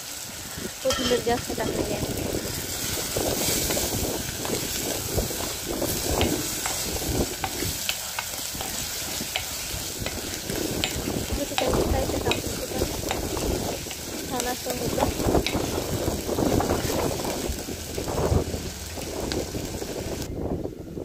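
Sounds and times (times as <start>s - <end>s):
chicken sizzling in a pan: 0.0s - 20.3s
spatula scraping a pan: 2.6s - 17.4s.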